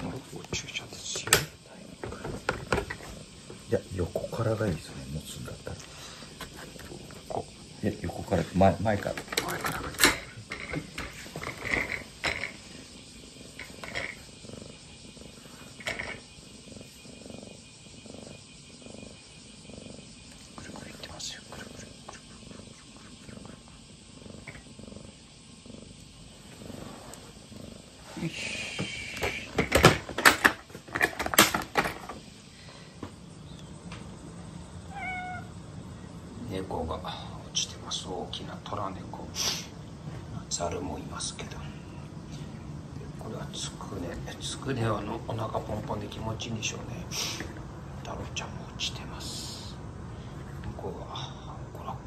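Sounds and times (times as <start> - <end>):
kitten purring: 0.0 - 30.0, 33.3 - 49.8
cat meowing: 34.9 - 35.5.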